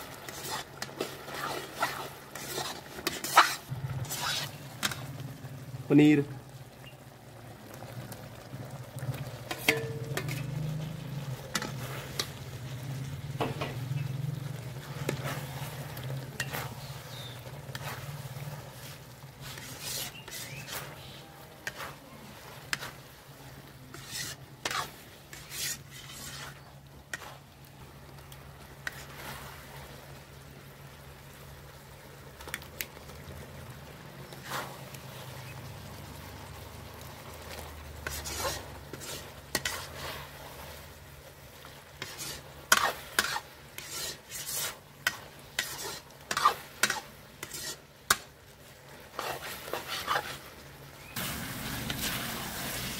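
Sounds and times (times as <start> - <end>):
low sizzle: 0.0 - 52.9
ladle scraping and clinking pan: 0.2 - 5.1, 9.4 - 12.4, 14.8 - 23.0, 23.9 - 27.4, 38.0 - 40.3, 42.0 - 48.3.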